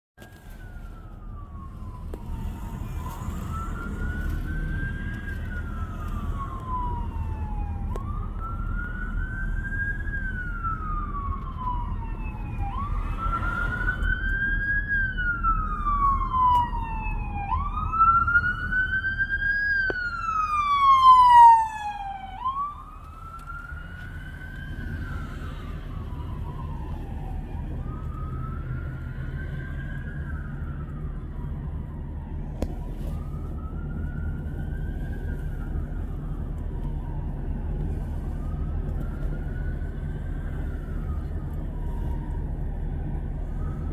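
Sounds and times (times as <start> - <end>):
ambulance siren wailing: 0.2 - 43.9
low traffic rumble: 0.2 - 43.9.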